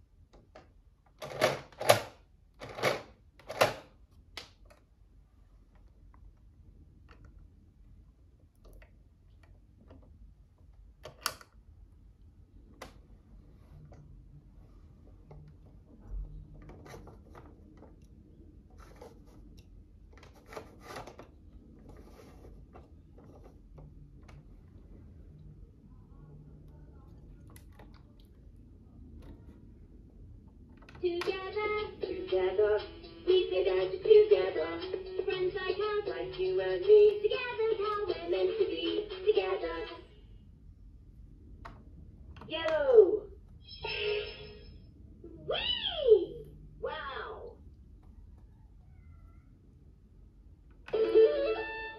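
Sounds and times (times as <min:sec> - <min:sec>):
plastic scraping and rubbing: 0:15.1 - 0:24.5.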